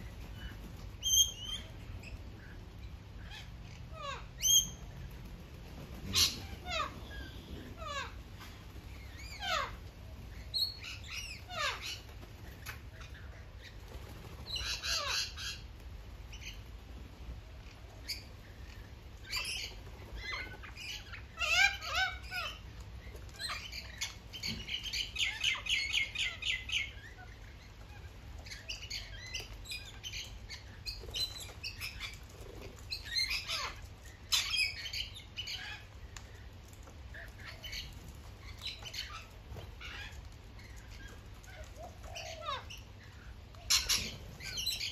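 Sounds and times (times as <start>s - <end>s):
parrots screeching and chattering: 0.0s - 5.2s, 5.9s - 15.7s, 17.6s - 44.9s
wings flapping: 4.7s - 9.2s, 13.7s - 15.0s.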